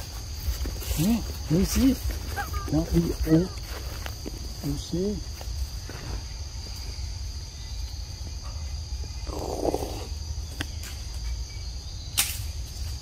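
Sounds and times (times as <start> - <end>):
rustling noise: 0.0 - 7.0
insect chorus shrill drone: 0.0 - 13.0.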